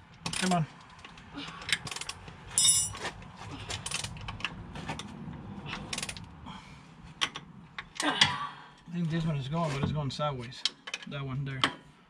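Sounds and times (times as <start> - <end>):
metal clinks: 2.0 - 3.0.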